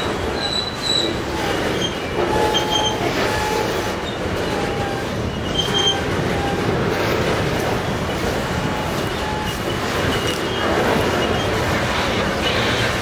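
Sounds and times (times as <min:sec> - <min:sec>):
train wheels rumbling on rails: 0:00.0 - 0:13.0
high-pitched wheel squeals: 0:00.3 - 0:06.7, 0:08.7 - 0:11.6.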